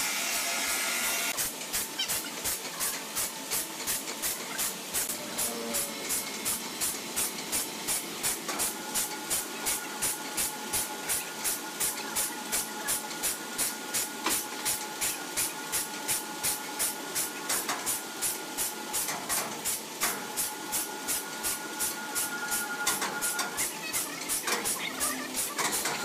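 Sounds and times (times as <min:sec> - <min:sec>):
sawmill machinery clattering: 0:00.0 - 0:26.0.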